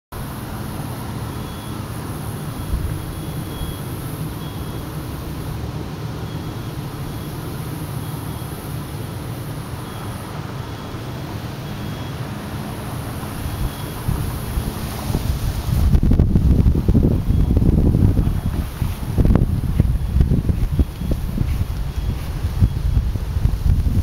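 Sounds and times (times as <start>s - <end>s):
low outdoor rumble: 0.1s - 24.0s
faint high beeps: 1.2s - 14.8s, 17.2s - 17.6s, 19.8s - 23.0s.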